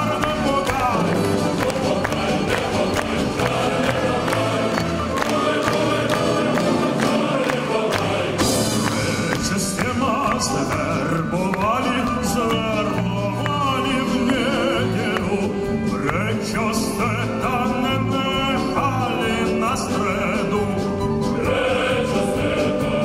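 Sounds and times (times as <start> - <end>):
man singing folk song: 0.0 - 4.6, 8.0 - 21.1
orchestral accompaniment: 0.0 - 23.0.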